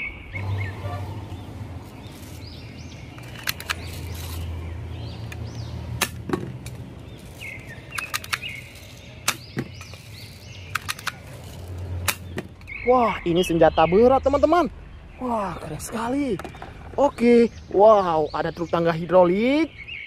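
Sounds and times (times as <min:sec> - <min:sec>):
toy gun clicks and pops: 0:03.2 - 0:03.9, 0:07.9 - 0:11.3.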